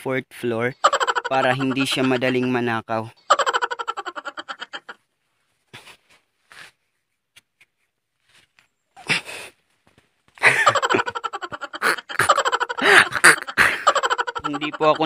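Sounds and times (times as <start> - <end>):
man laughing loudly: 0.8 - 5.0, 10.4 - 15.0.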